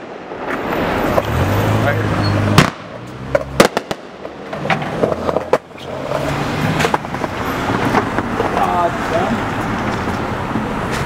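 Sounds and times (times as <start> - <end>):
fireworks bangs: 2.5 - 4.5
fireworks popping: 3.5 - 4.6.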